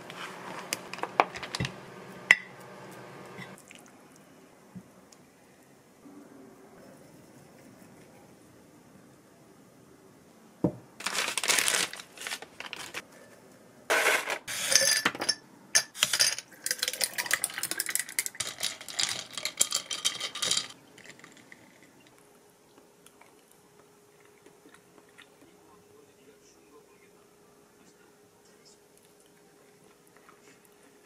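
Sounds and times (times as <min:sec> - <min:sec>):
crinkling rustling handling noise: 0:11.0 - 0:13.1.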